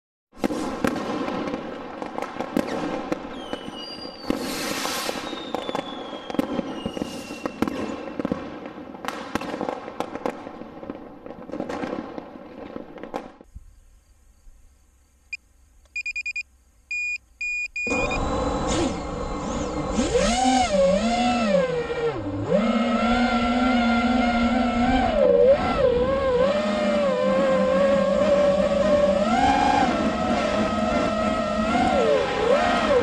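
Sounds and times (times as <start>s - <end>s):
fireworks bangs and crackles: 0.3s - 13.5s
whistling rockets: 0.4s - 13.5s, 17.9s - 22.1s, 24.8s - 33.0s
short electronic beeps: 15.3s - 19.1s.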